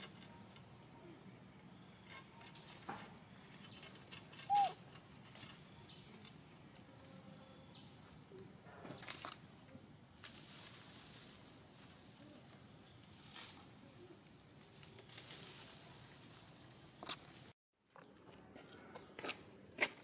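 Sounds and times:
animal squeak: 0:04.4 - 0:04.9.

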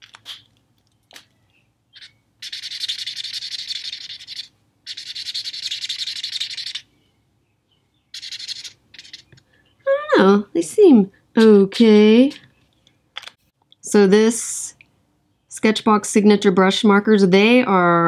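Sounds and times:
marker scratching on paper: 0:00.0 - 0:00.5, 0:08.2 - 0:09.4.

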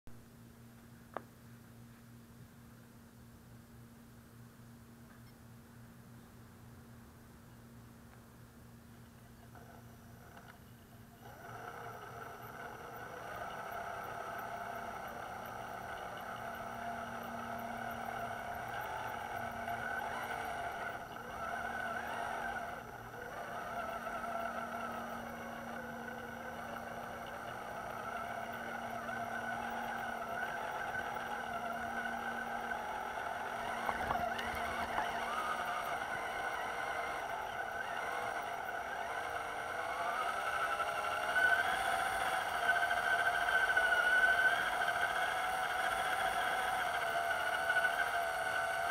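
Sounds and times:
rc truck motor whining: 0:09.2 - 0:48.9.

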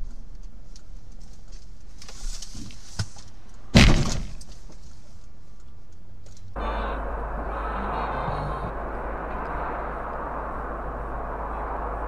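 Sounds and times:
car rumbling in motion: 0:00.0 - 0:12.0
vehicle collision bang: 0:03.7 - 0:04.5.

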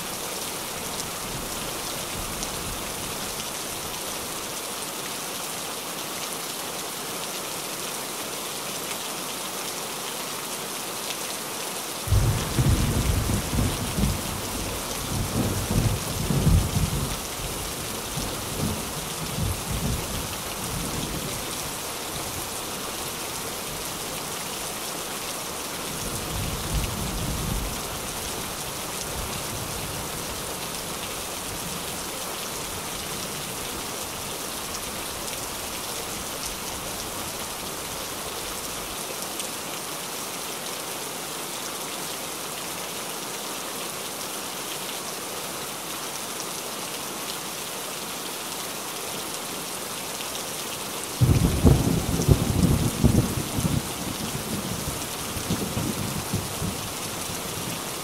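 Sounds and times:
rain on a tin roof: 0:00.0 - 0:58.0
low rumble of thunder: 0:12.1 - 0:17.2, 0:51.2 - 0:57.0.

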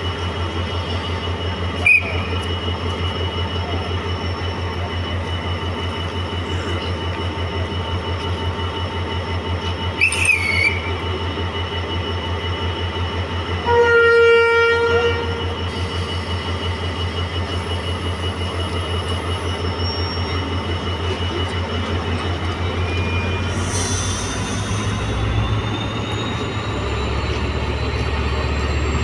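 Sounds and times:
diesel locomotive engine idling: 0:00.0 - 0:29.0
short shrill whistle: 0:01.8 - 0:02.4, 0:10.0 - 0:11.0
train horn blowing: 0:13.6 - 0:15.4.

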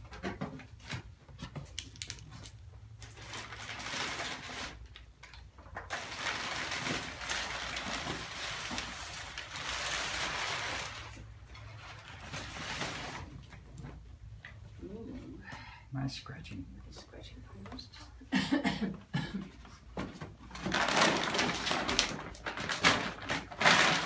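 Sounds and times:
packing paper rustling: 0:01.7 - 0:05.1, 0:05.8 - 0:13.5, 0:20.5 - 0:24.0.

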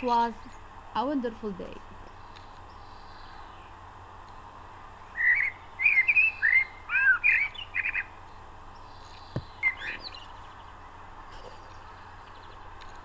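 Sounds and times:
bird chirping: 0:02.0 - 0:04.5, 0:05.1 - 0:13.0.

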